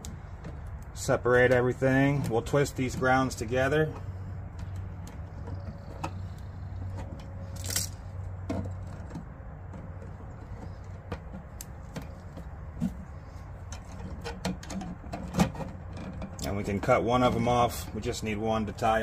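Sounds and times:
pliers twisting wires: 4.6 - 8.1.

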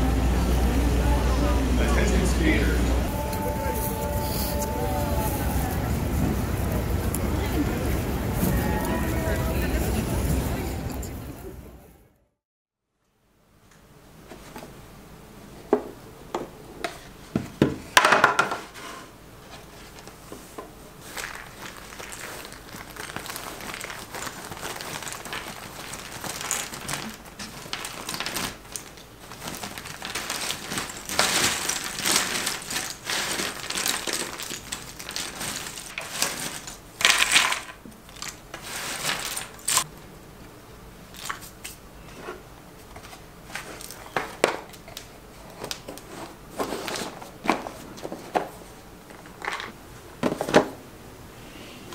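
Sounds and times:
puzzle pieces clattering: 21.0 - 39.8.

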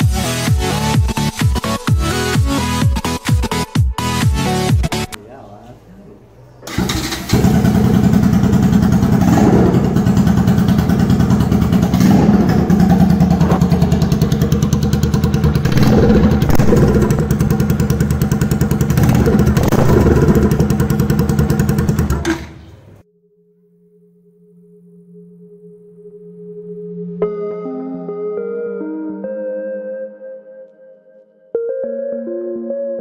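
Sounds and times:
motorcycle engine starting and idling: 6.6 - 23.0.

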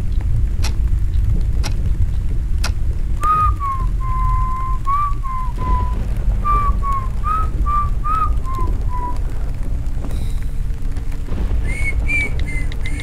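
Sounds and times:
low steady rumble: 0.0 - 13.0
man whistling a tune: 3.2 - 9.2, 11.6 - 13.0.

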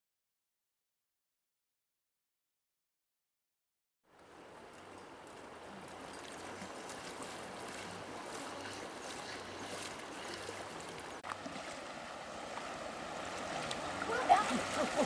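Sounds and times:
legs wading through water: 4.1 - 15.0
river rushing: 4.2 - 15.0.

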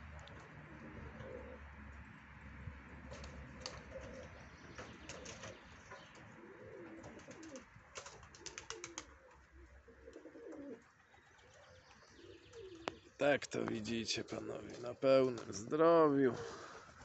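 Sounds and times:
pigeons cooing: 0.0 - 1.9, 3.1 - 13.2, 16.3 - 17.0.

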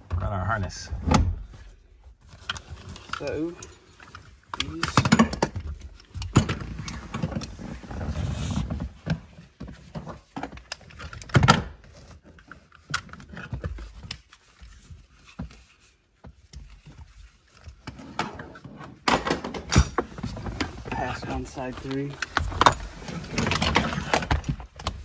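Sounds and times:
nylon webbing rustling and sliding: 5.9 - 10.4, 13.4 - 17.8, 20.1 - 25.0.

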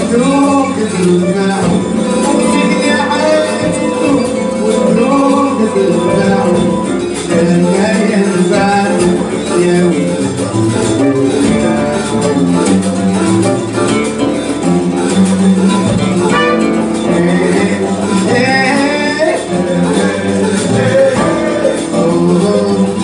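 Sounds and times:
congas: 0.0 - 23.0
drum kit: 0.0 - 23.0
guitars: 0.0 - 23.0
keyboard: 0.0 - 23.0
saxophones: 14.3 - 23.0.

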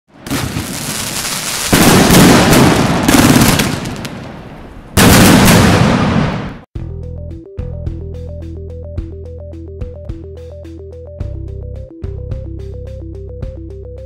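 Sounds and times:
fireworks crackling and banging: 0.1 - 6.6.

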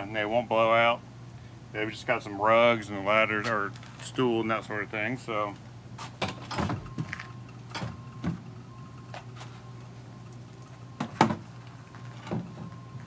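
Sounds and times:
steady low hum: 0.0 - 13.0
knocks on wooden box: 11.0 - 11.4.

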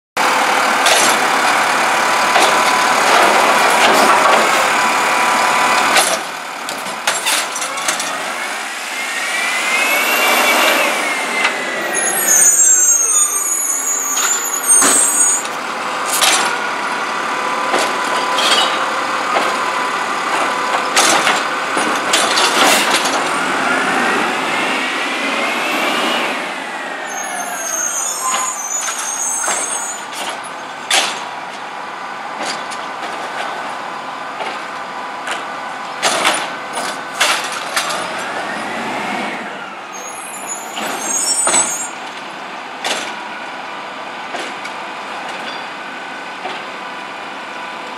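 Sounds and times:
diesel engine revving: 0.2 - 34.6
air brakes hissing: 8.1 - 15.6, 24.6 - 30.5, 37.9 - 42.1.

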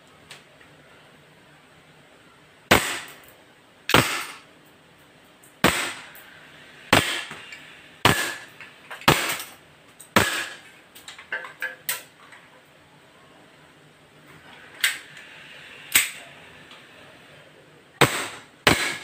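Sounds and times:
airsoft pistol shots: 2.7 - 3.2, 3.9 - 4.4, 5.6 - 6.2, 6.9 - 7.4, 8.0 - 9.5, 10.1 - 10.6, 18.0 - 19.0.

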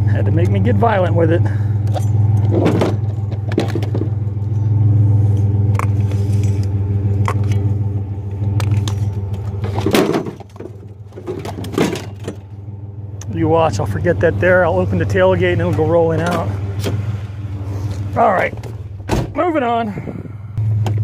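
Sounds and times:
engine idling: 0.0 - 21.0
metal clinks and knocks: 8.5 - 12.5.

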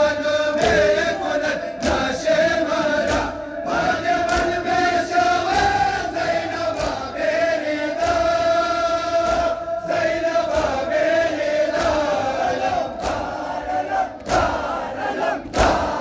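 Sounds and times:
crowd of men chanting: 0.0 - 16.0.

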